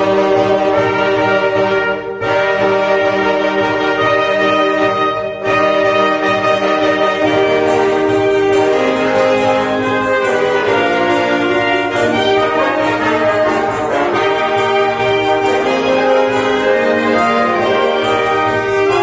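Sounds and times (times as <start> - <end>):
wind band playing a hymn: 0.0 - 19.0.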